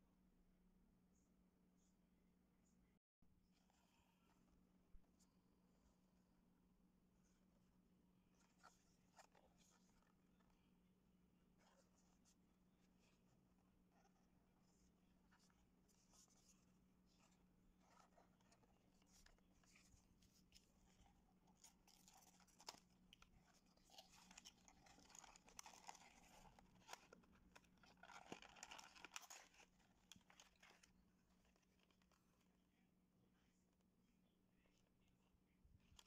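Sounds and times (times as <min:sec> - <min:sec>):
plastic blister tray crinkling: 0:20.6 - 0:32.2
cardboard box handling: 0:21.5 - 0:30.9.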